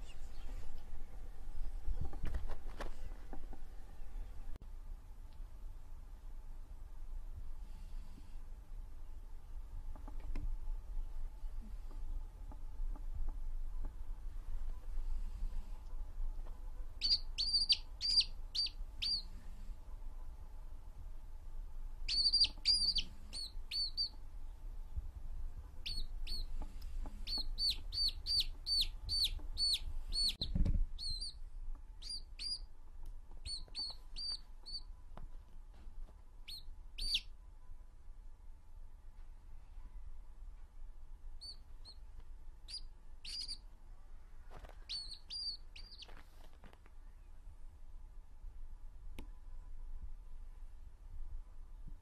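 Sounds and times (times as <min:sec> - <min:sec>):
chick peeping: 0:17.0 - 0:19.4, 0:22.1 - 0:24.2, 0:25.8 - 0:31.4, 0:32.0 - 0:32.7, 0:33.4 - 0:34.9, 0:36.4 - 0:37.3, 0:42.7 - 0:43.6, 0:44.8 - 0:46.2.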